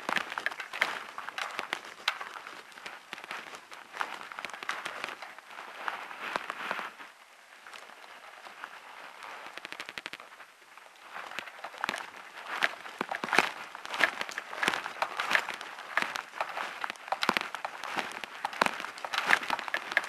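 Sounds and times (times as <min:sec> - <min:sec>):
footsteps on gravel: 0:00.0 - 0:07.0, 0:11.0 - 0:20.0.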